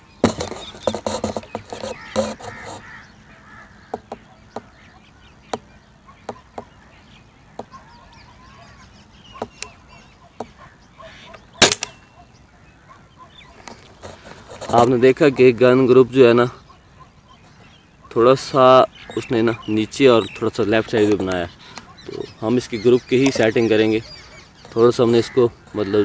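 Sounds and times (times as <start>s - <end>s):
air rifle shot: 11.6s - 12.0s.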